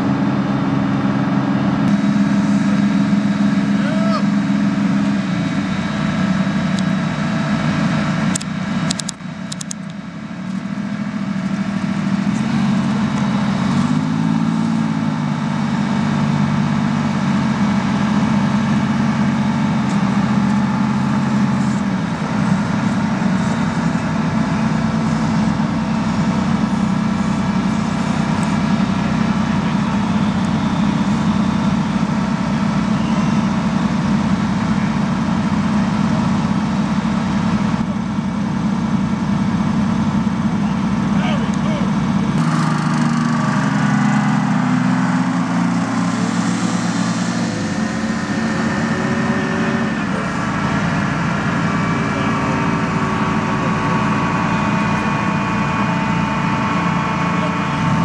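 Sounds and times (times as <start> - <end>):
diesel engine idling and revving: 0.0 - 58.0.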